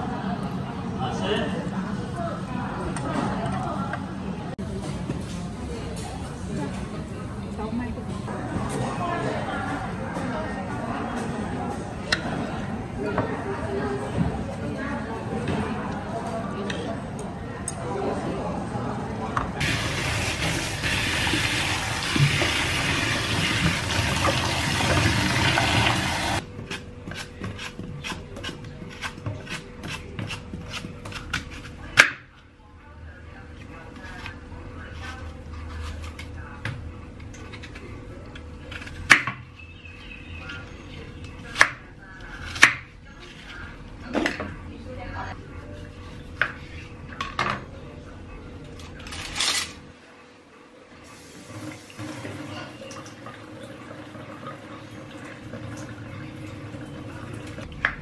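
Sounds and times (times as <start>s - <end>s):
tap water running into basin: 19.6s - 26.4s, 51.2s - 58.0s
apple peeling scrapes: 26.6s - 31.9s, 34.0s - 36.4s.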